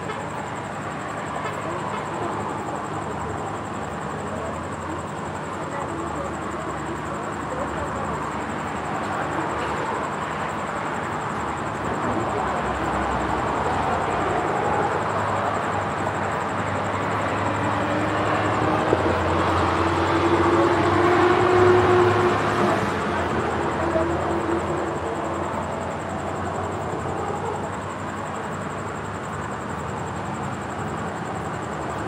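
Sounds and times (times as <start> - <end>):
cars driving past: 8.0 - 32.0.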